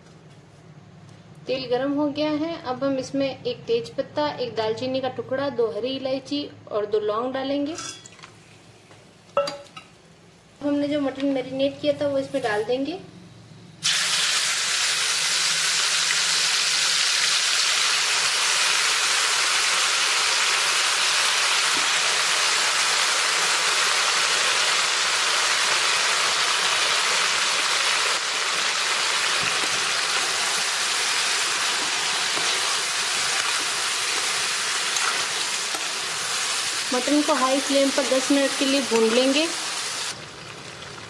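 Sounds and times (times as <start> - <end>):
meat sizzling in hot oil: 13.8 - 41.0.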